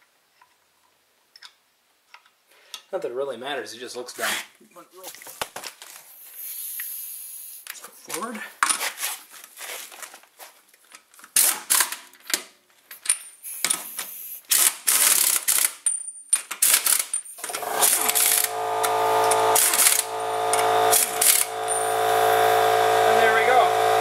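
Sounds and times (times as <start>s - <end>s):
pneumatic impact wrench: 11.4s - 12.0s, 13.4s - 15.8s, 16.6s - 24.0s
steady machine hum: 17.4s - 24.0s.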